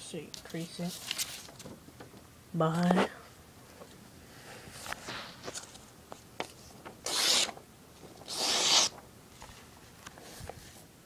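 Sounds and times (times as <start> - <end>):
loud rubbing scrapes: 7.1 - 7.5, 8.3 - 8.9.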